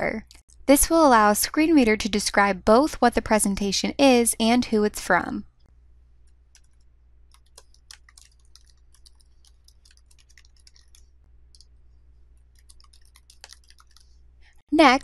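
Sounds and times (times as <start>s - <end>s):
keyboard keys clicking: 6.6s - 11.7s, 12.5s - 14.1s.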